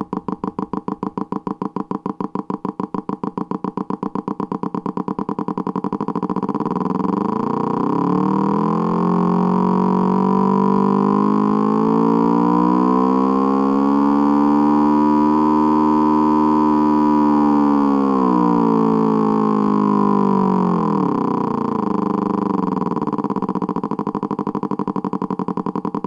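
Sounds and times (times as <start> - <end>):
simulated twin engine revving: 6.0 - 26.0.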